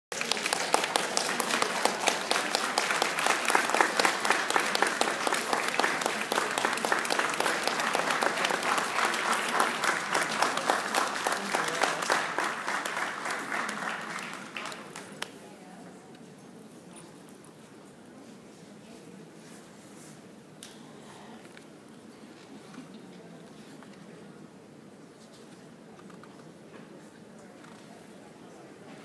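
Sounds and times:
audience applauding: 0:00.1 - 0:15.3.

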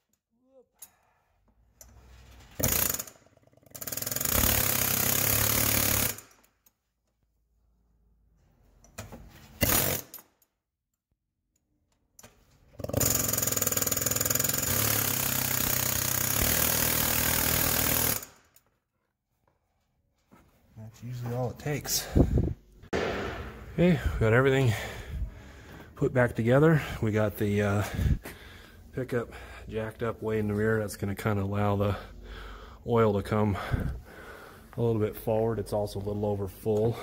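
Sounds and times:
pneumatic air chisel rattling: 0:01.9 - 0:06.5, 0:09.5 - 0:10.3, 0:12.7 - 0:18.5.

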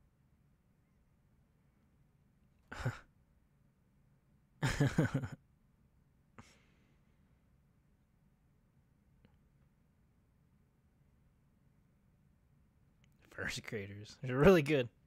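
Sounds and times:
man laughing softly: 0:02.6 - 0:03.1, 0:04.6 - 0:05.4.

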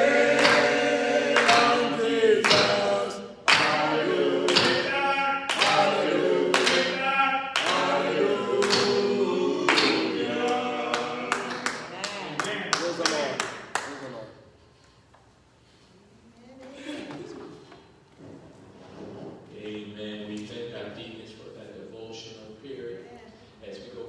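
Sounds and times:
men singing a cappella: 0:00.0 - 0:12.0
hand claps: 0:00.1 - 0:14.2.

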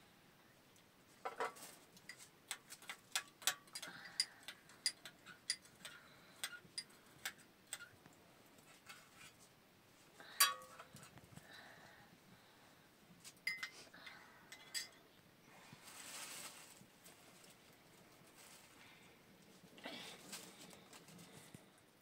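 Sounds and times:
teaspoon clinking against glass: 0:13.4 - 0:13.7.

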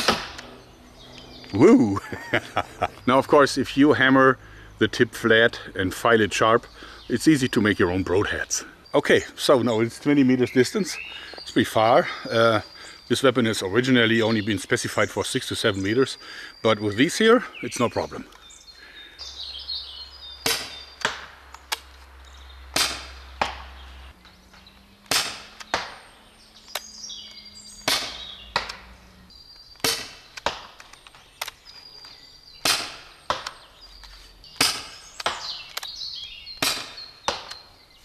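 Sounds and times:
airgun shot pop: 0:00.0 - 0:00.5, 0:22.8 - 0:23.7, 0:25.1 - 0:26.0, 0:27.9 - 0:28.8, 0:29.8 - 0:30.8.

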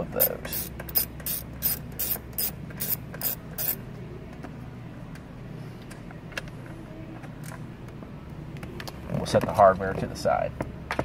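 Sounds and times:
ratchet clicking: 0:00.2 - 0:03.8.

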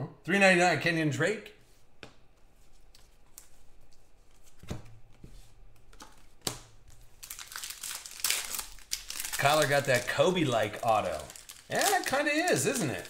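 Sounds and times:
pack wrapper crinkling: 0:07.0 - 0:13.0.

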